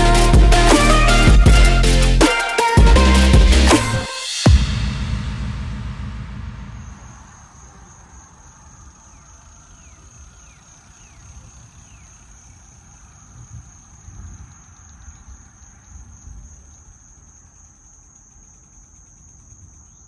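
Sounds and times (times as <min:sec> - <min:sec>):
electronic intro music: 0:00.0 - 0:07.3
insects buzzing: 0:06.8 - 0:20.0.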